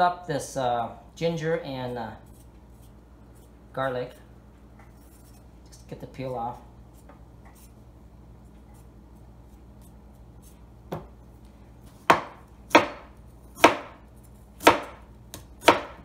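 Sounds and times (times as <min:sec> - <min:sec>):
knife chopping on cutting board: 0:12.0 - 0:14.0, 0:14.6 - 0:16.0.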